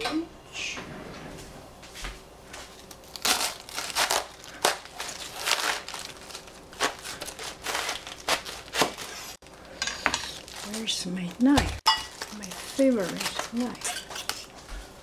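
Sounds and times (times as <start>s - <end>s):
cabbage crinkling and tearing: 2.8s - 9.6s, 10.2s - 11.5s, 12.1s - 14.6s.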